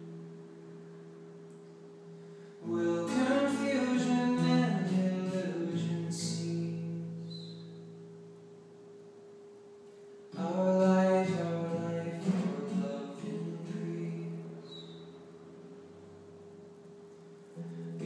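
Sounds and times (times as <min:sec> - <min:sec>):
acoustic guitar strumming: 0:00.0 - 0:18.0
man singing: 0:02.6 - 0:07.1, 0:10.4 - 0:14.6.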